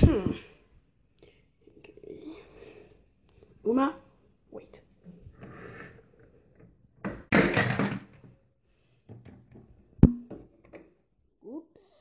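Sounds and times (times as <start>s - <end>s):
toy hitting the floor: 7.0s - 8.3s.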